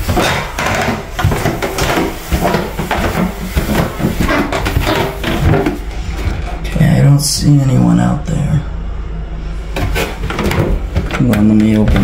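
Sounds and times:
footsteps on carpeted stairs: 0.0s - 6.6s.

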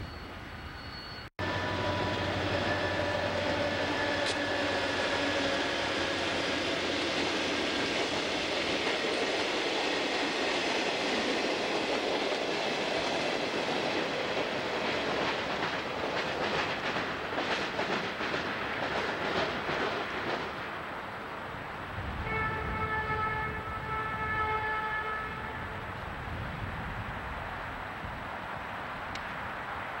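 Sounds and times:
diesel locomotive engine: 0.0s - 30.0s
freight cars rumbling on rails: 1.4s - 28.2s
wheels clacking over rail joints: 1.7s - 20.8s.

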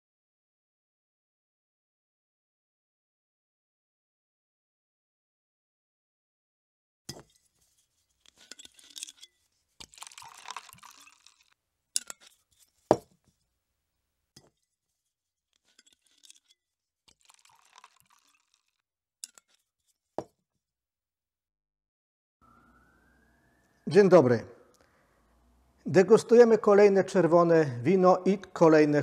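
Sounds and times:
glass clinking: 7.1s - 7.5s, 8.2s - 13.1s, 15.6s - 18.6s, 19.2s - 19.6s
wine pouring into a glass: 8.3s - 13.1s, 15.7s - 16.5s, 17.1s - 19.4s.

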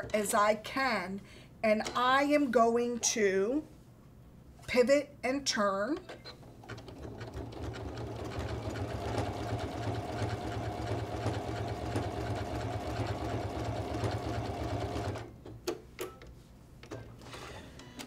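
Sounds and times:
sewing machine running: 6.7s - 15.3s.

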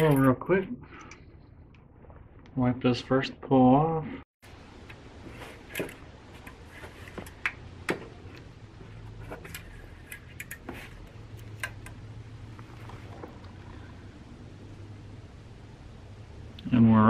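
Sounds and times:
steady low hum: 3.9s - 17.0s.

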